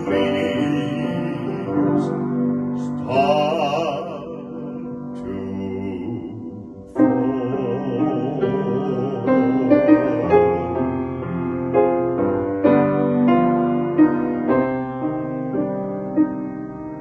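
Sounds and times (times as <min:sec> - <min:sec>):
piano playing chords: 0:00.0 - 0:17.0
man singing held note: 0:02.8 - 0:11.1.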